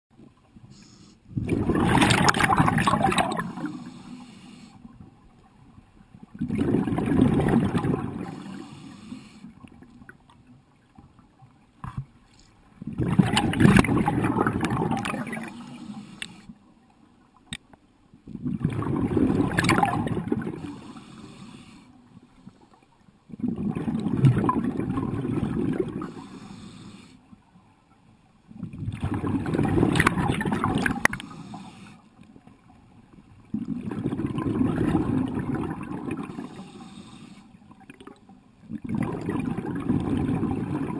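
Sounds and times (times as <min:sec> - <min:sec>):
exhaled bubbles rushing: 0:01.3 - 0:04.0, 0:06.3 - 0:08.7, 0:12.8 - 0:15.8, 0:18.3 - 0:20.8, 0:23.3 - 0:26.2, 0:28.5 - 0:31.2, 0:33.5 - 0:36.6, 0:38.7 - 0:40.9.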